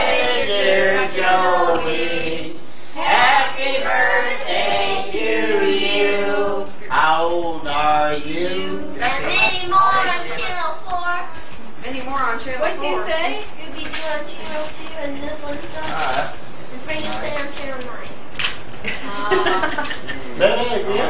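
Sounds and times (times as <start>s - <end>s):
group singing unaccompanied: 0.0s - 10.5s.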